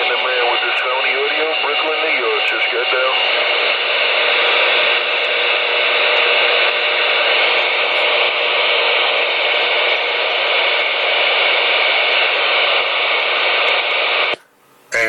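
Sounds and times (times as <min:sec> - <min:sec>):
radio static hiss: 0:00.0 - 0:15.0.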